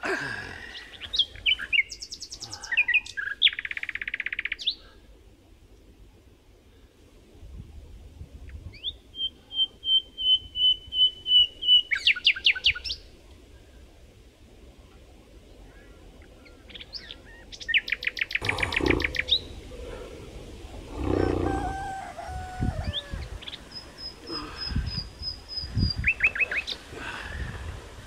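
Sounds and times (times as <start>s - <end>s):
small birds chirping: 0.4s - 4.9s, 15.7s - 20.0s, 22.8s - 27.0s.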